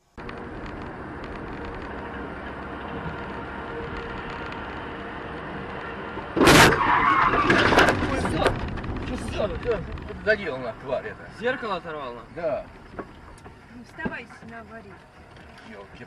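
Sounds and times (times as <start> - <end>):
road noise inside moving car: 0.0 - 16.0
loud bang and clatter: 6.3 - 10.2.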